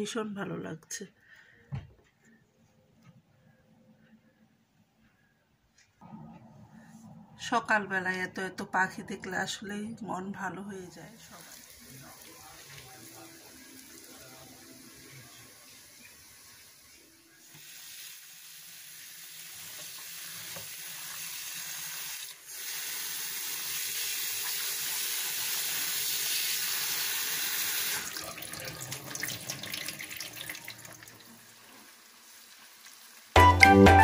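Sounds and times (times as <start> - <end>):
tap water running into bowl: 19.2 - 33.1.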